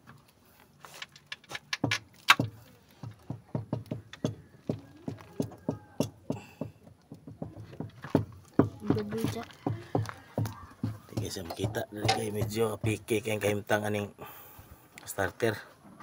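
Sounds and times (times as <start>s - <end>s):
sharp clicks and knocks: 1.0s - 13.3s.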